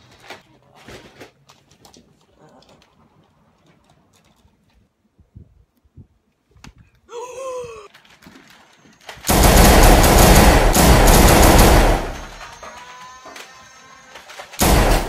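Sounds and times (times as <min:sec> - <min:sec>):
short bending cry: 0:07.1 - 0:07.9
rapid automatic gunfire: 0:09.1 - 0:12.8, 0:14.1 - 0:15.0.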